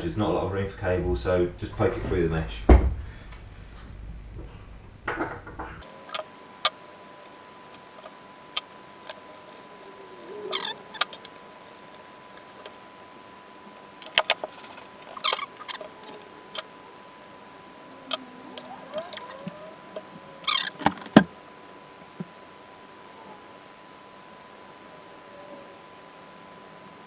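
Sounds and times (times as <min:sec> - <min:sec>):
faint high whine: 0:00.0 - 0:27.0
hands rustling wiring: 0:13.7 - 0:16.8, 0:18.1 - 0:21.3.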